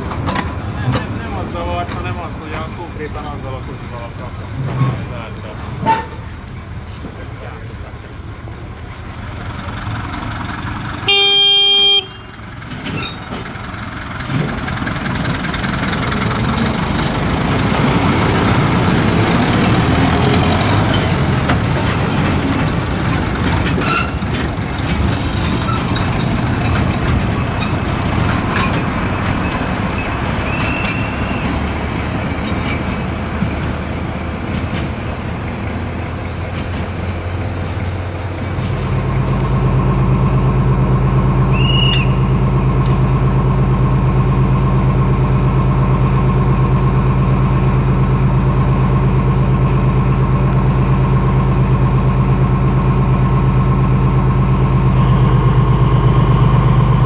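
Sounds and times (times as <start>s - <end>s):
diesel locomotive engine running: 0.0s - 57.0s
locomotive horn: 11.0s - 12.4s.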